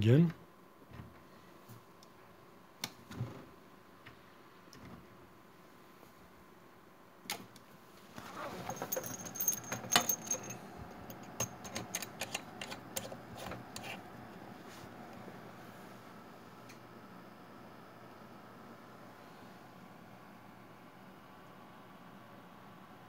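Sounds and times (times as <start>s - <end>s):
metallic clinks and rattling: 8.4s - 12.1s.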